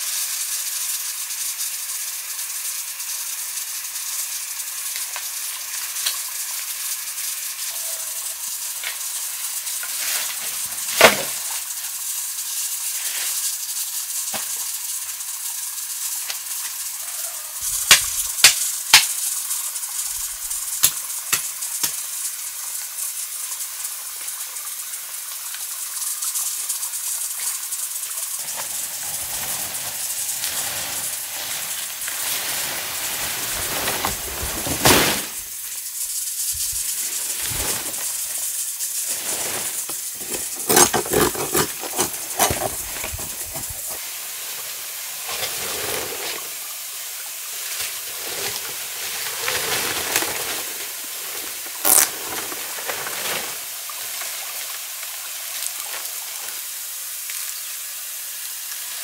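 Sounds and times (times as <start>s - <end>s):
food sizzling over fire: 0.0s - 59.0s.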